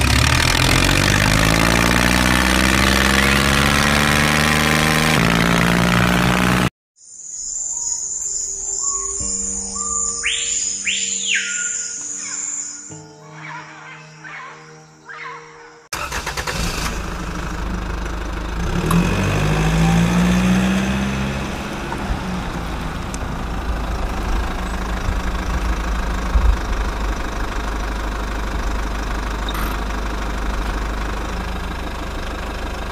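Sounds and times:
engine running with low rumble: 0:00.0 - 0:06.7, 0:16.0 - 0:32.9.

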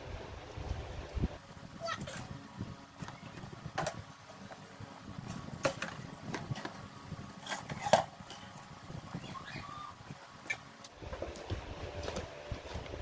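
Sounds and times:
fan parts clicking and knocking: 0:02.0 - 0:09.4.

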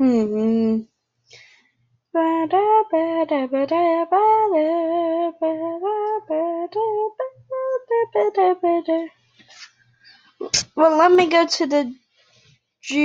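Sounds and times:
person singing wordless tune: 0:00.0 - 0:00.8, 0:02.2 - 0:09.1.

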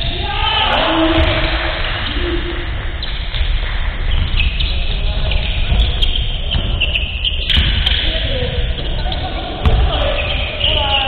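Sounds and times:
distant echoing voices: 0:00.0 - 0:11.0
sneakers squeaking on wooden court: 0:03.0 - 0:11.0.

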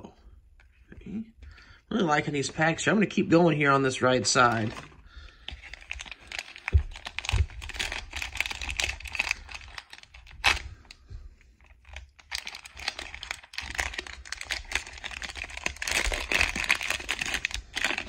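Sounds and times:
wrapper crinkling and tearing: 0:04.5 - 0:11.0, 0:11.6 - 0:18.0.

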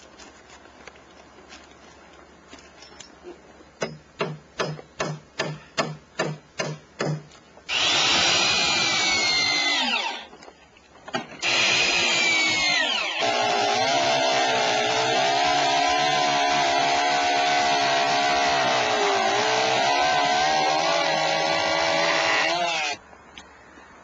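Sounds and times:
power tool whine winding down: 0:07.7 - 0:10.3, 0:11.4 - 0:23.0.

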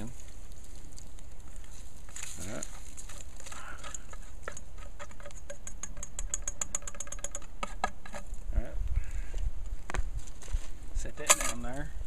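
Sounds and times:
metal spoon scraping and tapping pan: 0:03.8 - 0:08.3.

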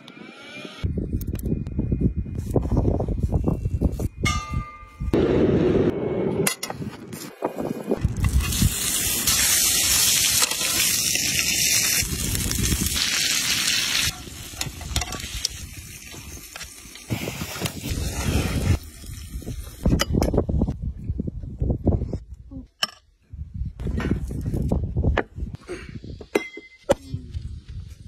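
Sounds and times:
steak sizzling on griddle: 0:08.3 - 0:19.2.

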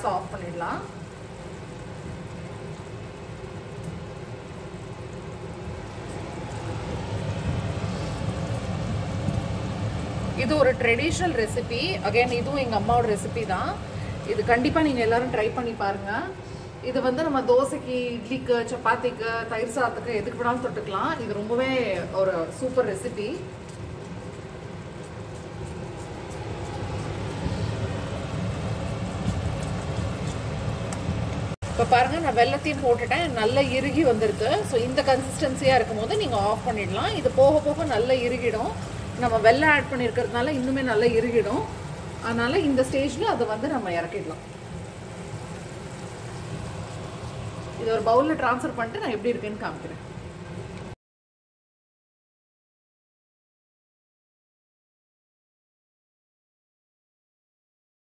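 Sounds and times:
gas burner hissing: 0:00.0 - 0:17.0, 0:24.3 - 0:50.8
range hood fan humming: 0:00.0 - 0:51.0
thick mixture bubbling: 0:01.0 - 0:15.2, 0:22.5 - 0:48.4.

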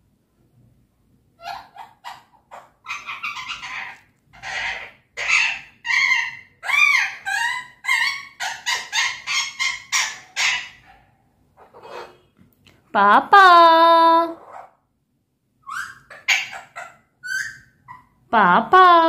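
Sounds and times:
parakeet squawking: 0:01.4 - 0:11.0, 0:11.6 - 0:12.3, 0:14.3 - 0:14.8, 0:15.6 - 0:18.2.

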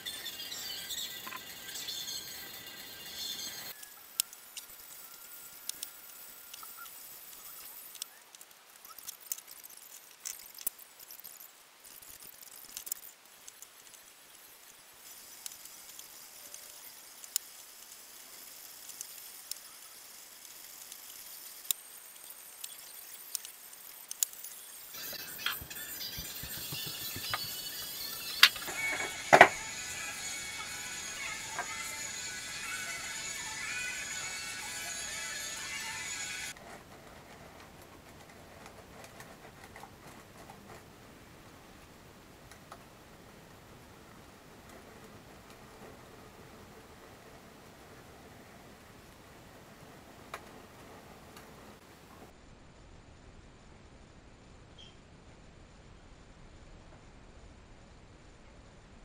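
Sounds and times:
light rubbing of wood: 0:25.0 - 0:40.9.

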